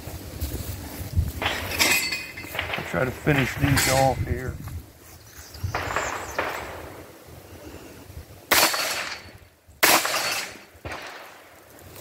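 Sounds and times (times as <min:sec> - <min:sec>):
gunshots echoing: 0:02.4 - 0:04.4, 0:05.7 - 0:07.2, 0:08.5 - 0:11.5.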